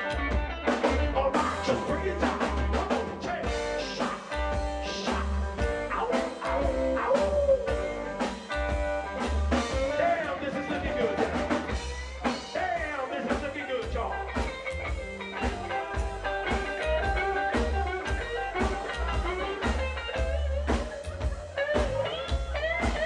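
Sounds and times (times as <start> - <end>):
drum kit beat: 0.0 - 23.0
electric guitar: 0.0 - 23.0
upright bass pulsing: 0.0 - 23.0
man singing: 0.9 - 8.3, 9.6 - 14.6.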